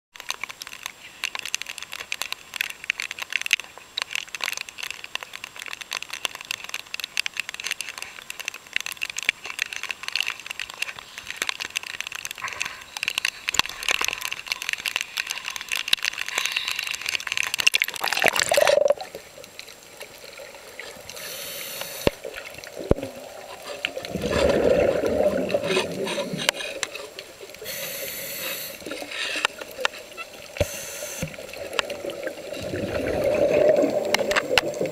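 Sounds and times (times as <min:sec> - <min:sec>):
dense underwater crackle of clicks: 0:00.1 - 0:34.9
diver exhaling bubbles: 0:17.9 - 0:19.2, 0:22.8 - 0:26.8, 0:31.5 - 0:34.9.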